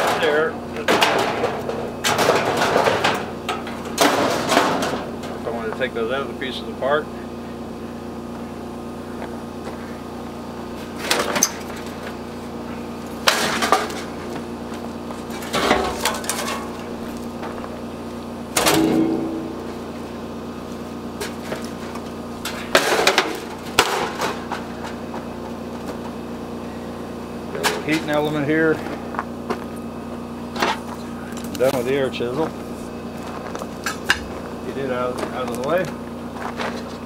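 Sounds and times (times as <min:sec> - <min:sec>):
sheet metal clanking: 0:00.0 - 0:05.4, 0:18.6 - 0:20.4
steady machine hum: 0:00.0 - 0:37.0.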